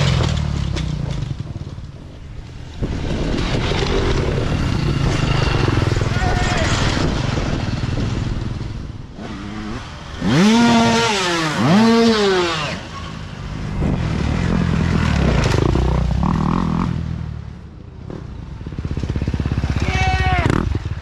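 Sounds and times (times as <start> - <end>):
dirt bike engine revving: 2.8 - 17.3.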